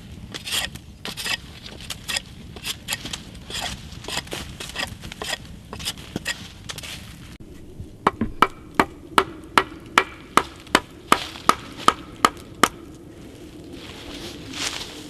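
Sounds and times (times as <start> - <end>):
hatchet chopping wood: 8.0 - 12.8.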